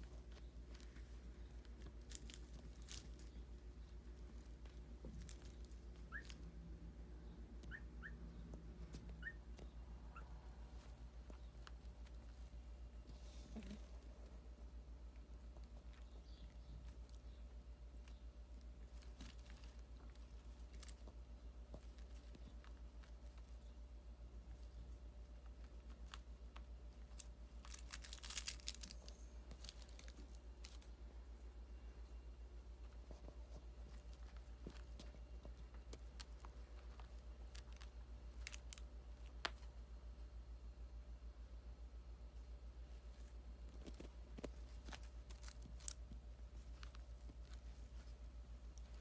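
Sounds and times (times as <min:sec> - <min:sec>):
faint crinkling and clicking: 0:00.0 - 0:06.6, 0:08.4 - 0:31.2, 0:31.8 - 0:39.8, 0:42.3 - 0:49.0
puppy whimpering: 0:09.1 - 0:10.4.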